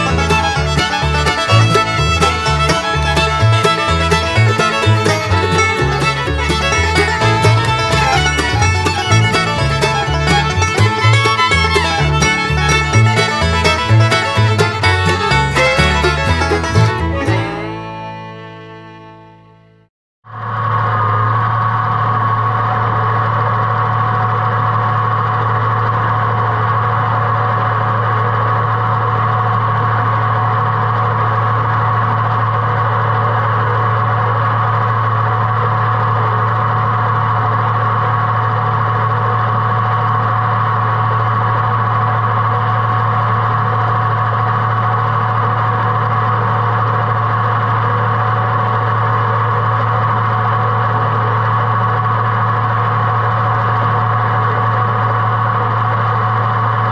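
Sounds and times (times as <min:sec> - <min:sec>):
mower cutting grass: 0:00.0 - 0:18.0
tractor engine running: 0:00.0 - 0:19.3, 0:20.3 - 0:56.9.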